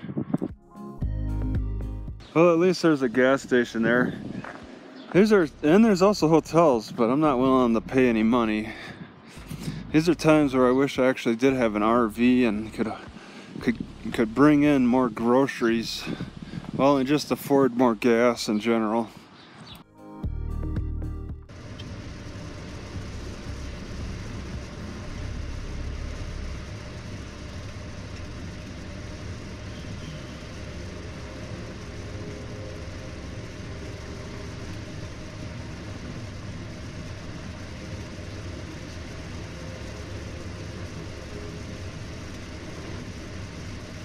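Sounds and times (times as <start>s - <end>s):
car road and engine noise: 0.0s - 19.8s, 21.0s - 44.0s.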